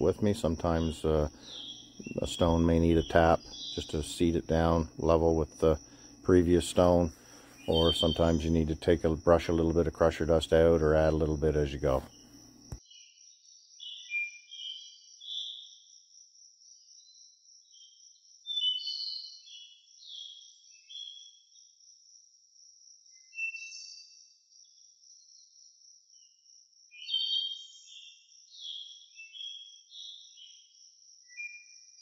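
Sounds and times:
birds chirping: 0.0 - 12.8
high-pitched insect drone: 0.2 - 12.1.

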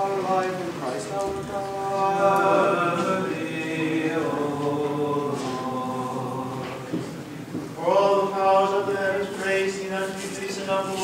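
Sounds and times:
voices chanting: 0.0 - 7.0.

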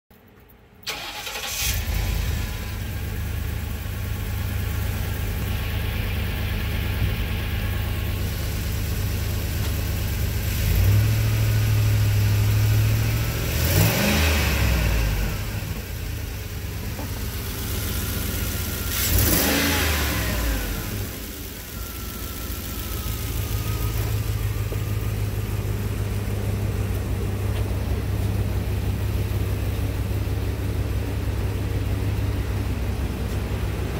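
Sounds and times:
van engine starting and idling: 0.2 - 33.9
engine revving: 10.5 - 16.1, 17.5 - 26.2.

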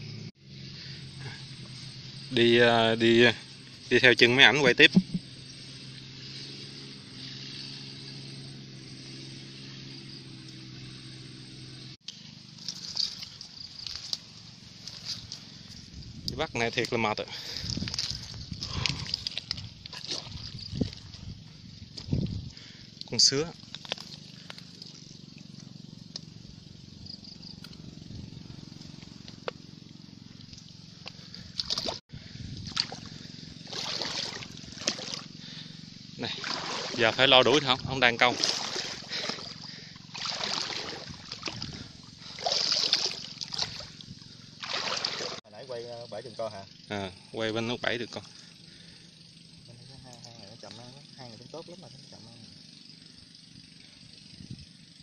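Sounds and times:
small engine humming: 0.0 - 16.3, 17.3 - 45.4
muffled water sloshing and gurgling: 17.2 - 26.4, 30.3 - 45.5
splashy sloshes: 17.9 - 21.2, 31.5 - 32.0, 32.6 - 35.4, 36.2 - 45.4.

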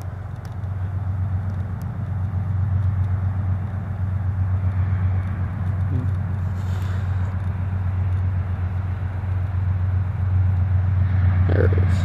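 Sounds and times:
low vehicle rumble: 0.0 - 12.0.

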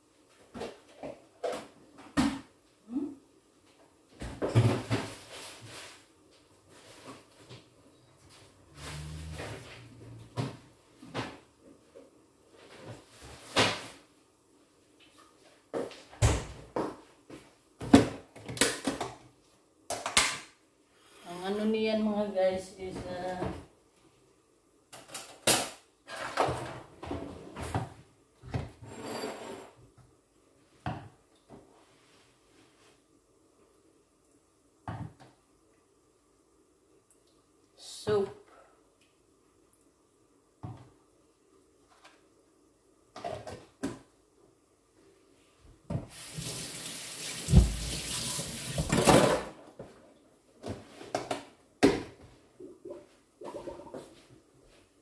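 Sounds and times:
kitchenware clattering and rustling: 4.2 - 5.8, 25.0 - 29.8, 48.7 - 50.0, 50.6 - 54.3
tap running into sink: 46.1 - 49.1.

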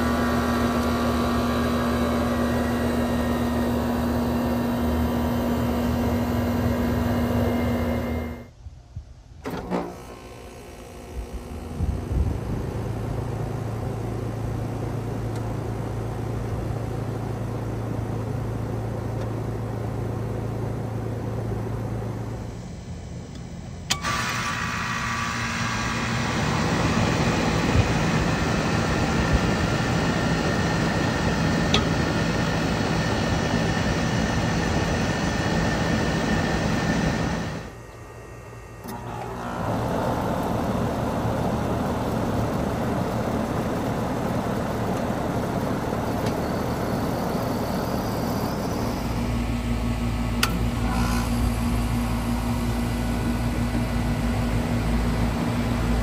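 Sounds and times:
air conditioner compressor and fan: 0.0 - 56.0
sharp click of unit starting: 23.3 - 28.3, 50.3 - 51.3.

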